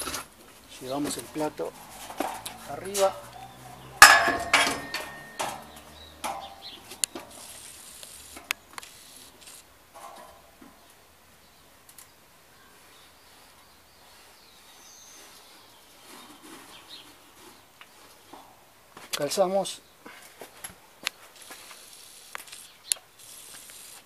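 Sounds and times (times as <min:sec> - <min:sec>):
metallic knocks and clinks: 0:04.0 - 0:06.7.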